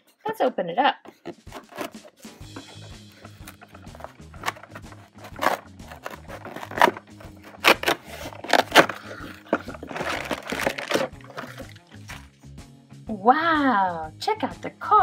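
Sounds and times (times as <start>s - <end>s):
cardboard box scraping and rustling: 1.2s - 11.7s
plastic packaging crinkling: 1.2s - 12.2s.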